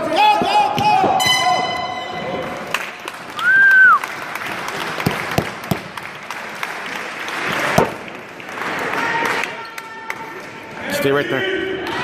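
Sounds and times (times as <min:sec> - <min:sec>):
audience applauding: 0:02.6 - 0:10.6.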